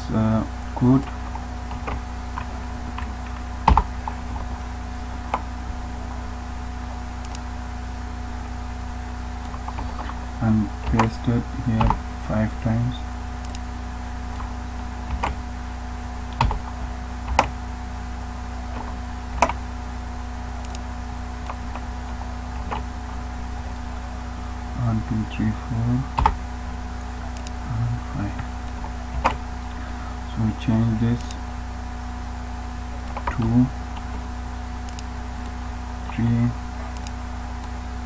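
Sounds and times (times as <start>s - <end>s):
steady low hum: 0.0s - 38.0s
computer keys and mouse clicks: 7.2s - 7.4s, 17.3s - 17.6s, 36.9s - 37.8s.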